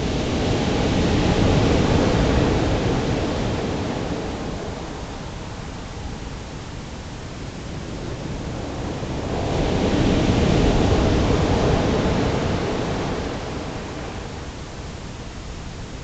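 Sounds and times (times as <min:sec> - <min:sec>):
breaking waves: 0:00.0 - 0:05.8, 0:07.9 - 0:14.5
wave crashing on shore: 0:00.0 - 0:16.0.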